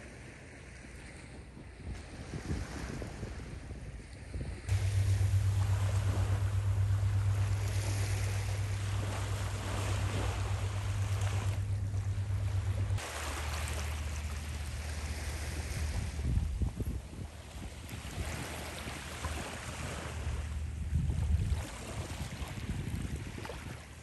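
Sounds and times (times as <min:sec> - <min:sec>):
wind rumble on microphone: 0:00.0 - 0:24.0
waves washing onto beach: 0:04.2 - 0:24.0.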